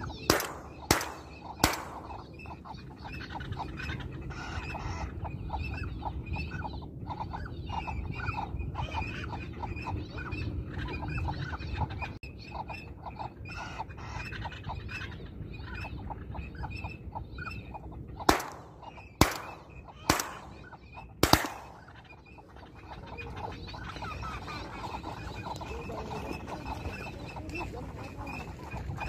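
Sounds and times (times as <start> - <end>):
ducks quacking: 0.0 - 29.0
shotgun shots echoing: 0.1 - 2.4, 18.3 - 21.9.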